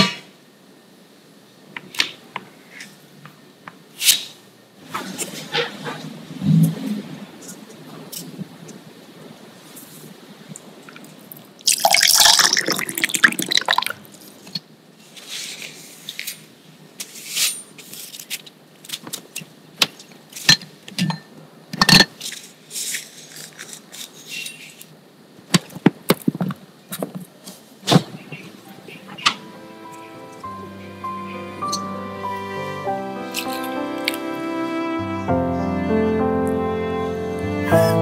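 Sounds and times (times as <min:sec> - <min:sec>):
water dripping: 0:11.7 - 0:14.1.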